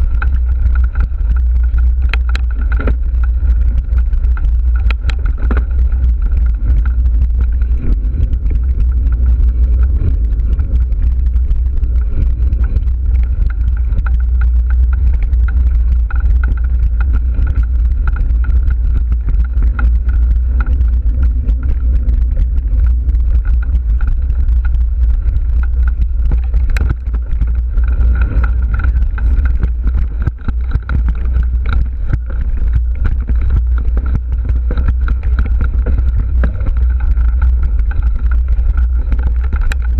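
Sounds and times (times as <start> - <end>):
bike rattling on rough trail: 0.0 - 39.9
wind buffeting microphone: 0.0 - 39.9.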